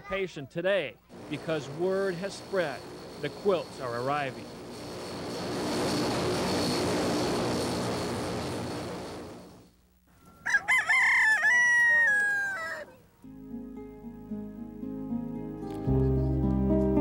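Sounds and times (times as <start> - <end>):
jet airliner rushing: 1.2 - 9.6
rooster crowing: 10.2 - 13.0.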